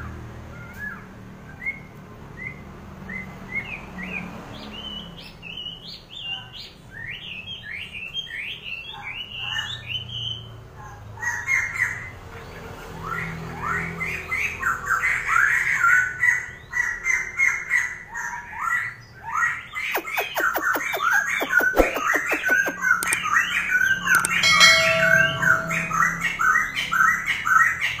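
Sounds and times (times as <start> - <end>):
songbird chirping rapidly: 19.5 - 28.0
sharp clicks: 20.0 - 23.3, 24.1 - 24.4.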